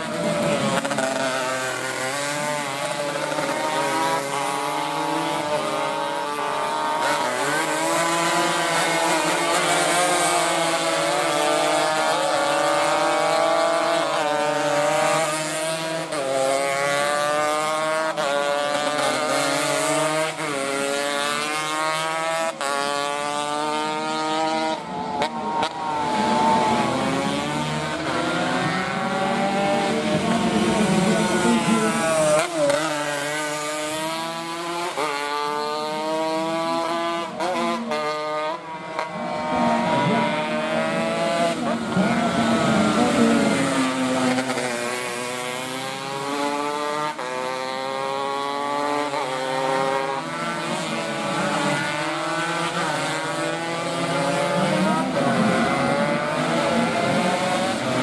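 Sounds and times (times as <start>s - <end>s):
racing motorcycle engines revving: 0.0s - 58.0s.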